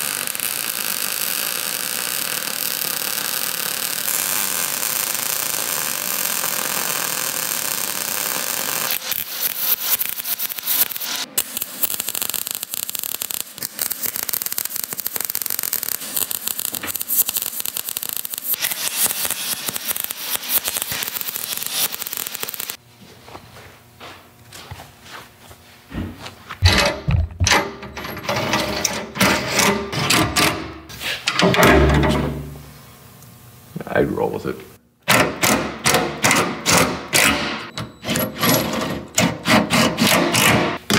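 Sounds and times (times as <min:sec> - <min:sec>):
welding arc hissing and crackling: 0:00.0 - 0:22.8.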